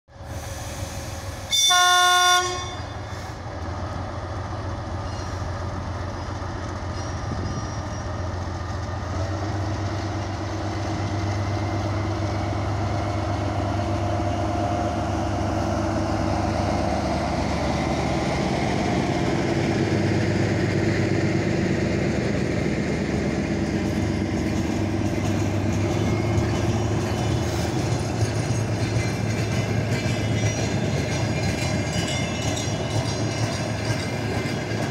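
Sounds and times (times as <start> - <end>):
diesel train engine drone: 0.1 - 34.9
train horn blast: 1.5 - 3.2.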